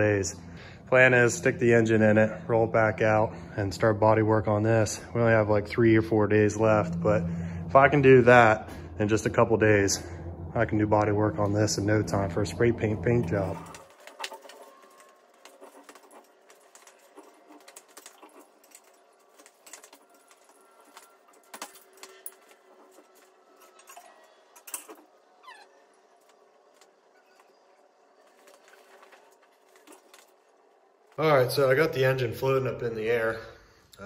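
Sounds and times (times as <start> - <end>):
metal chain clinks and rattles: 13.6 - 25.0.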